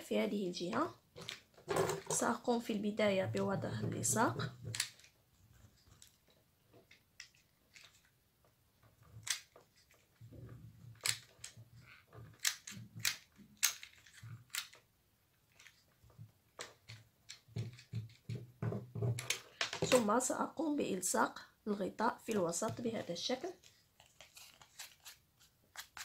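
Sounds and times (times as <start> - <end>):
glue gun clicks and snaps: 12.4 - 13.9
soft handling rustle: 22.2 - 26.0.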